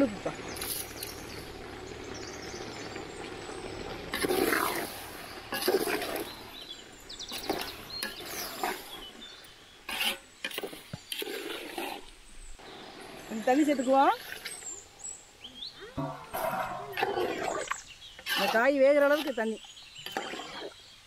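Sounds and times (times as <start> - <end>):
metal ladle scraping a pot: 4.1 - 6.7, 7.3 - 9.1, 9.8 - 12.1, 16.0 - 20.7.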